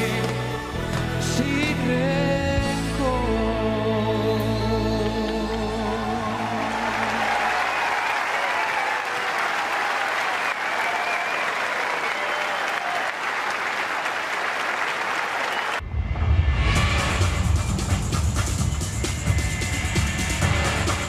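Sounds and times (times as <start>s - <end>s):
large audience applauding: 5.2s - 15.8s
band playing: 16.6s - 21.0s.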